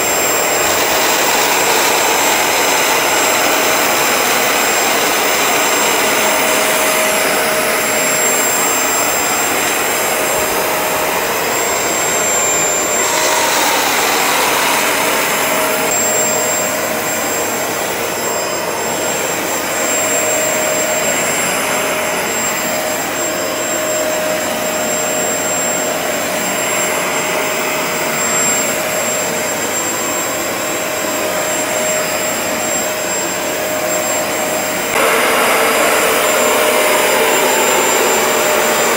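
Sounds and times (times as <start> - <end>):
carpet cleaner motor whine: 0.0 - 38.9.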